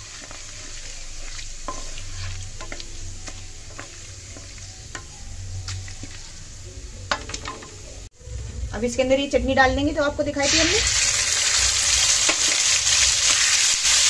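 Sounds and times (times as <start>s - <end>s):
spatula scraping a pan: 0.0s - 7.6s
spices sizzling and crackling in oil: 0.0s - 8.1s, 10.3s - 14.0s.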